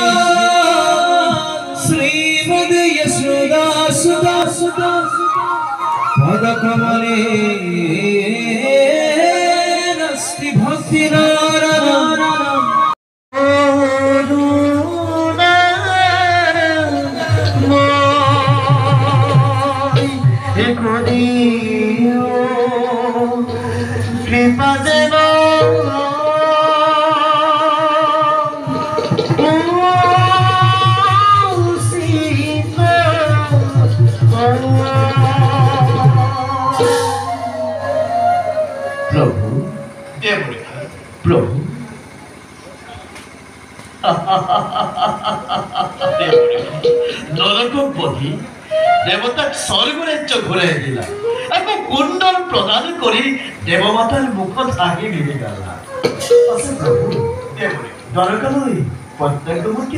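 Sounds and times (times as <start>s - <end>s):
man singing long held notes: 0.0s - 40.2s, 55.7s - 58.2s
instrumental accompaniment: 0.0s - 42.7s, 45.9s - 59.9s.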